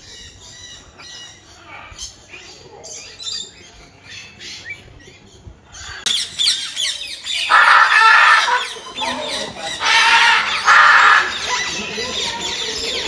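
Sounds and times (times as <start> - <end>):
birds chirping and squawking: 0.0 - 13.0
loud harsh bird squawk: 5.8 - 13.0.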